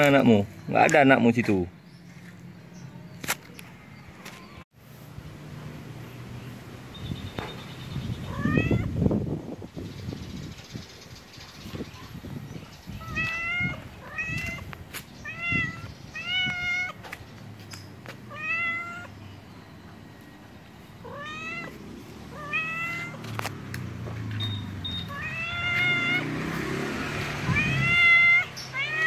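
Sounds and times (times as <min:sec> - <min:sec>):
cat meowing: 0:08.3 - 0:08.9, 0:13.0 - 0:17.0, 0:18.3 - 0:19.1, 0:21.0 - 0:23.2, 0:25.1 - 0:26.4, 0:27.4 - 0:29.0.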